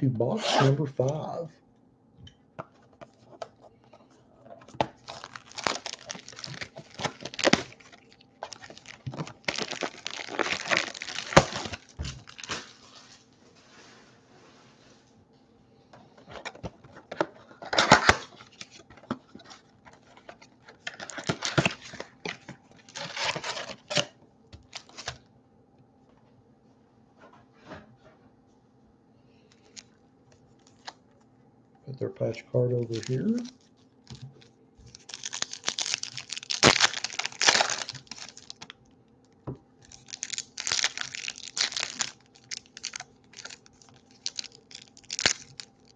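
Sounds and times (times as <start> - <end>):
plastic wrap crinkling: 4.6 - 13.3, 16.3 - 25.2, 32.8 - 38.8, 39.8 - 45.9.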